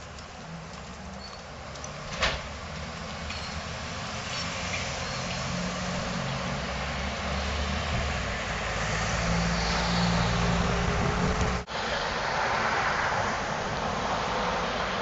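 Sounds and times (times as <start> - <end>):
road noise hiss: 0.0 - 15.0
vehicles passing: 0.0 - 15.0.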